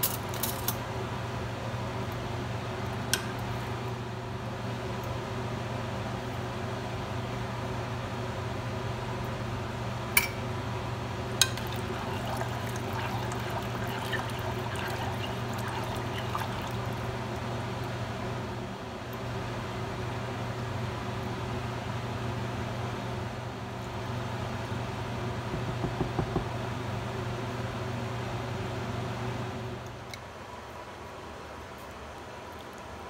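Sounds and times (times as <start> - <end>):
steady hum: 0.9 - 31.7
spoon stirring in a saucepan: 11.4 - 17.1
liquid sloshing: 11.5 - 17.2.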